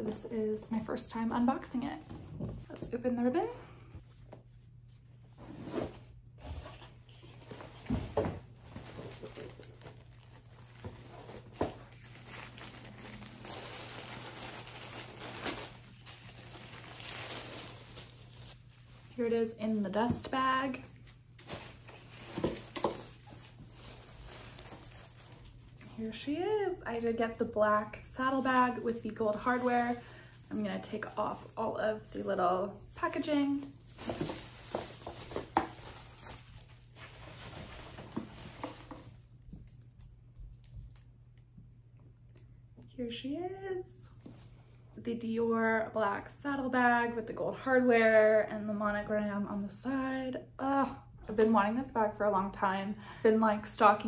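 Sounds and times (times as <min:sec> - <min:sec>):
tissue paper rustling: 0:04.1 - 0:19.6, 0:20.5 - 0:25.8, 0:27.7 - 0:39.8.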